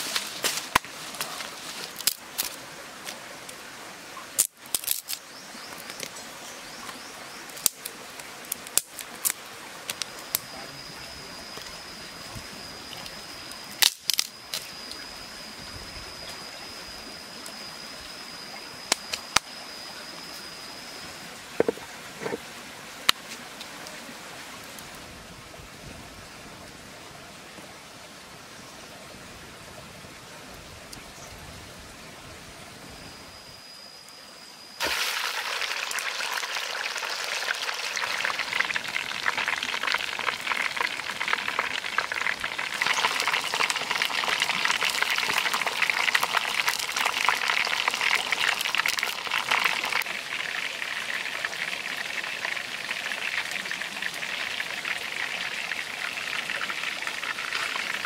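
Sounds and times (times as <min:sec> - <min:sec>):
fish sizzling and spattering in oil: 0:34.8 - 0:50.2
oil heating in a wok: 0:34.8 - 0:58.0.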